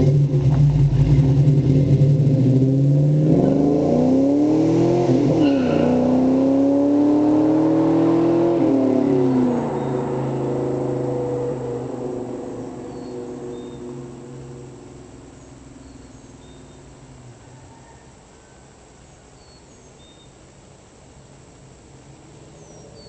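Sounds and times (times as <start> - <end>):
car engine accelerating: 0.0 - 17.4.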